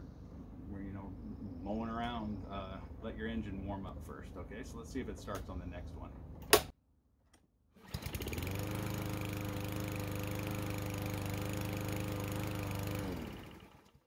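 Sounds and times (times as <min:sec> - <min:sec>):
pull-start snap: 0:06.4 - 0:06.7
lawn mower engine running: 0:07.8 - 0:14.0.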